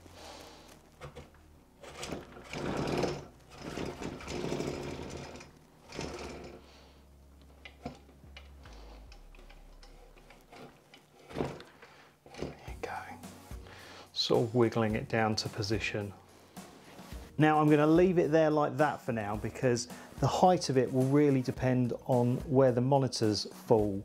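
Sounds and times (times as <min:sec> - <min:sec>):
metal-on-metal scraping rattle: 0:01.0 - 0:07.0, 0:07.6 - 0:12.8.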